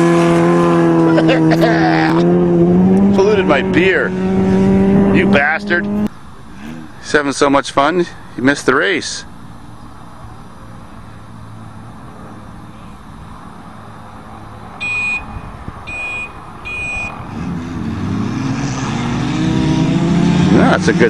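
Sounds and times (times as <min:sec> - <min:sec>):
car engines idling and revving: 0:00.0 - 0:21.0
short high-pitched beeps: 0:14.8 - 0:17.2.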